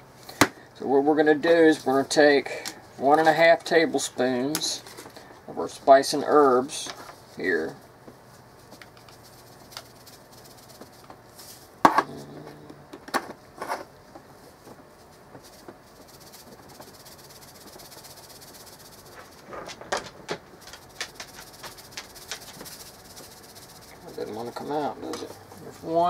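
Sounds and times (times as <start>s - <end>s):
seasoning rattling in shaker: 8.5s - 11.8s, 14.8s - 26.0s
shaker tapping on metal spoon: 20.7s - 23.6s.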